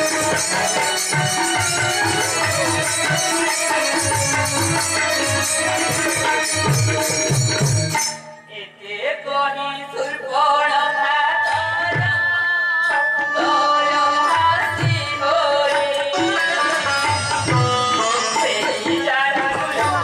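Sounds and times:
person singing a melody: 0:08.5 - 0:20.0.

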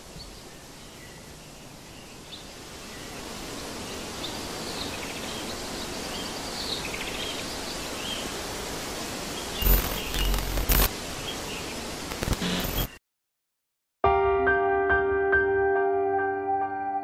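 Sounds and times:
steady hiss: 0:00.0 - 0:12.9.

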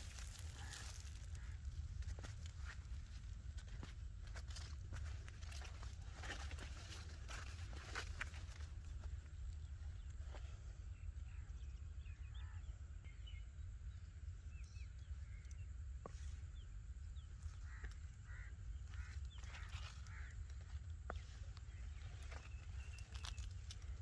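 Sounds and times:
low wind rumble on microphone: 0:00.0 - 0:24.0
faint bird chirps: 0:07.8 - 0:24.0.

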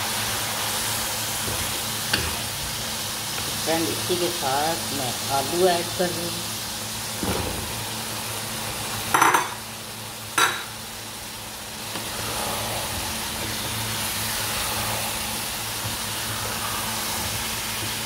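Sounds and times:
food sizzling in pan: 0:00.0 - 0:18.0
clattering knocks in pan: 0:09.1 - 0:09.6, 0:10.4 - 0:10.7.

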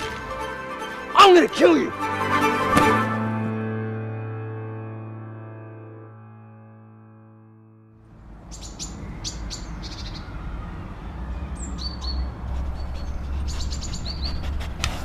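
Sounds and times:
small birds chirping: 0:08.1 - 0:14.8.

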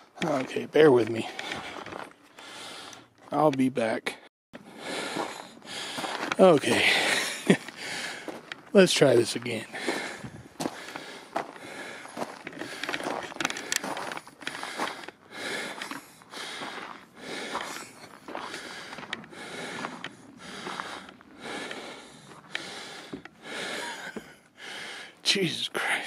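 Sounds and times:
person breathing hard: 0:01.3 - 0:03.1, 0:04.6 - 0:08.6, 0:09.6 - 0:25.2
clicks and scuffs of movement: 0:09.9 - 0:21.8.

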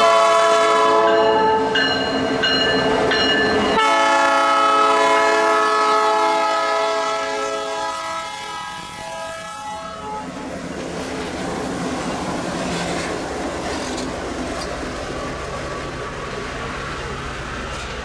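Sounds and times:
locomotive air horn chord: 0:00.0 - 0:01.8, 0:03.7 - 0:10.3
train wheels rolling on rails: 0:00.0 - 0:18.0.

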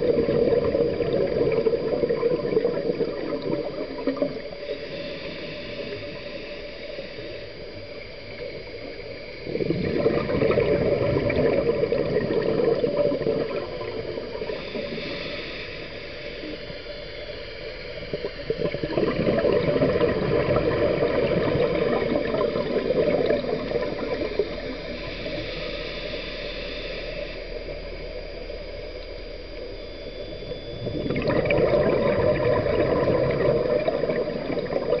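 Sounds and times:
bubbling exhalations underwater: 0:00.0 - 0:04.4, 0:09.5 - 0:14.5, 0:18.1 - 0:25.0, 0:30.5 - 0:35.0
faint hiss: 0:02.5 - 0:31.3.

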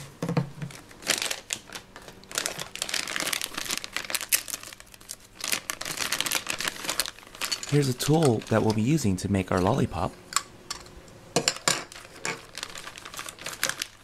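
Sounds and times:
plastic bag crinkling: 0:00.6 - 0:09.9, 0:11.5 - 0:14.0
plastic toy parts handled: 0:02.0 - 0:08.8.

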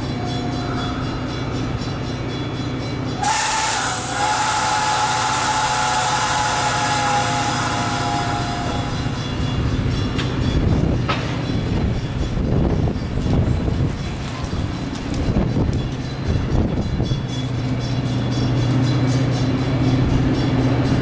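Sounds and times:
locomotive engine droning: 0:00.0 - 0:21.0
high whistling tone: 0:03.1 - 0:10.0.

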